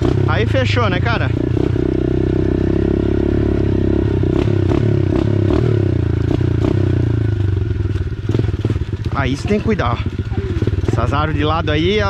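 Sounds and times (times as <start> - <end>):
dirt bike engine running: 0.0 - 12.0
bike clattering over bumps: 7.8 - 11.0.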